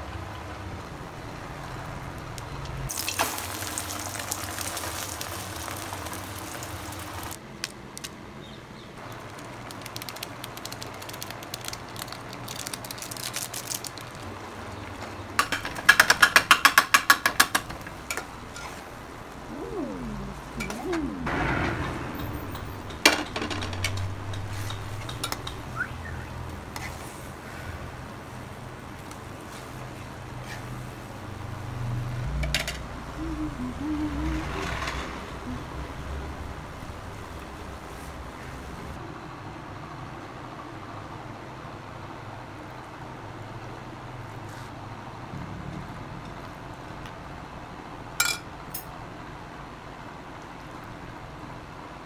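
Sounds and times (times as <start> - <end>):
egg sizzling in a pan: 2.9 - 7.4, 9.0 - 14.3.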